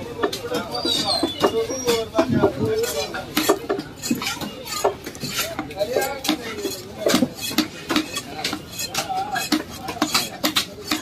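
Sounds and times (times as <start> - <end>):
knife chopping on wooden block: 2.2 - 11.0.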